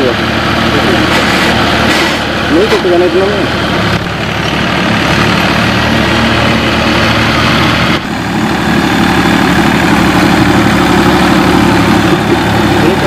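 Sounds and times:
tractor diesel engine under load: 0.0s - 13.0s.

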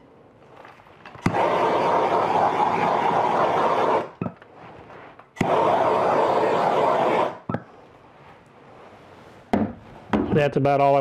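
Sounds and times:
gas torch flame hissing: 1.2s - 4.6s, 5.3s - 7.8s.

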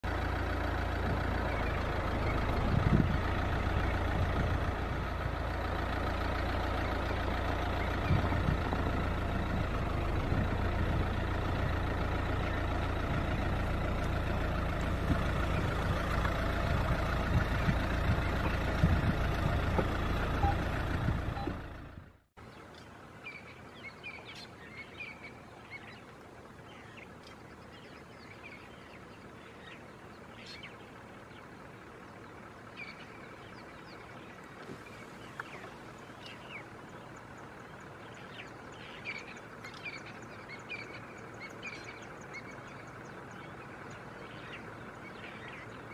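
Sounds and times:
birds chirping: 0.0s - 45.9s
vehicle engine rumbling: 0.0s - 45.9s
engine knocks: 0.1s - 22.2s.

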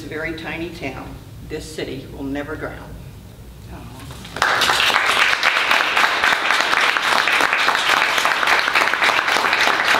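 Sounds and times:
audience applauding: 4.4s - 9.9s.

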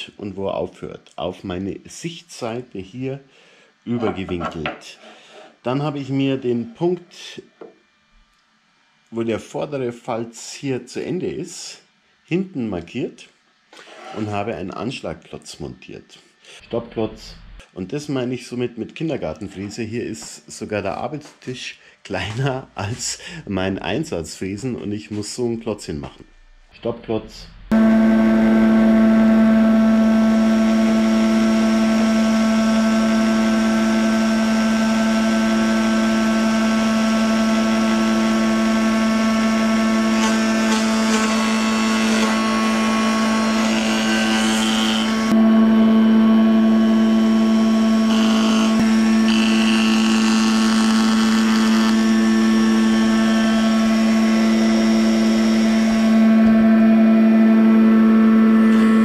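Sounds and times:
cutter cutting wood: 27.7s - 45.5s, 46.7s - 57.0s
spindle moulder humming: 38.7s - 59.0s.

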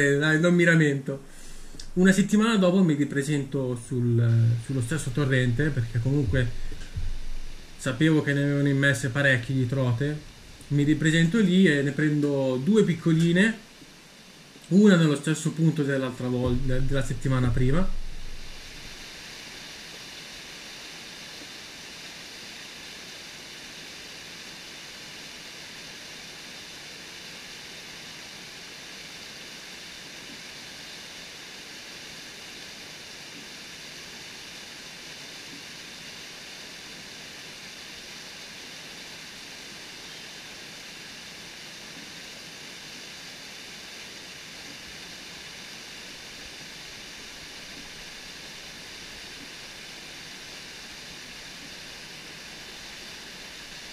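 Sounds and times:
water rushing over rocks: 1.3s - 11.7s, 16.1s - 19.2s.

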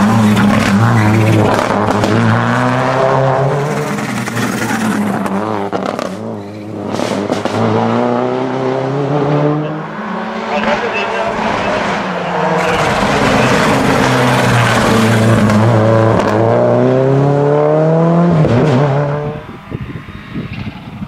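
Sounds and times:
rally car engine passing: 0.0s - 21.0s
engine sharp cracks: 12.5s - 15.7s.

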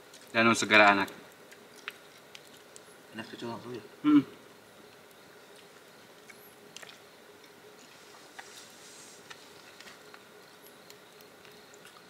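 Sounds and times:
soft hiss: 0.0s - 12.0s
chewing: 1.4s - 2.9s, 10.9s - 12.0s.

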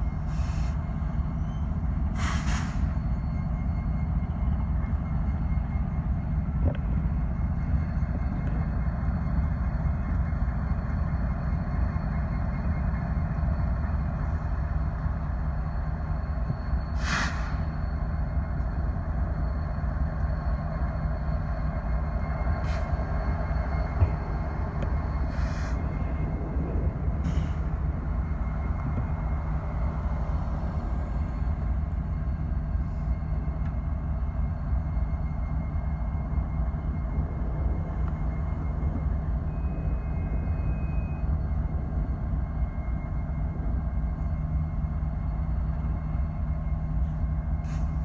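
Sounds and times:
diesel locomotive engine rumbling: 0.0s - 48.0s
short hisses: 17.0s - 17.6s.

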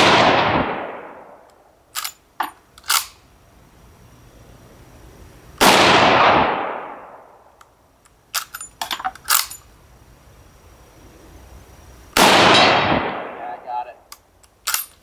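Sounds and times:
rifle shot: 0.0s - 1.4s, 5.6s - 7.4s, 12.2s - 13.6s
rifle bolt metallic clacks: 2.0s - 3.2s, 8.3s - 9.7s, 14.1s - 15.0s.

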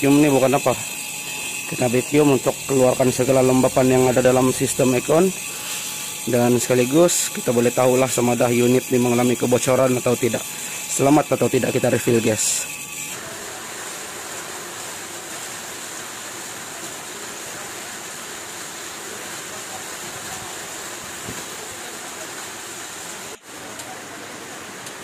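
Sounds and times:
heavy rain falling: 13.2s - 25.0s.

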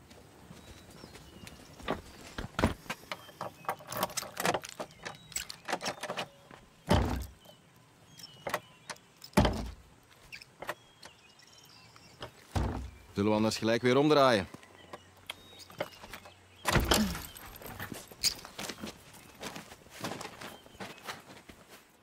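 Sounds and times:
heavy thumps: 12.5s - 13.1s
footsteps: 15.8s - 22.0s.

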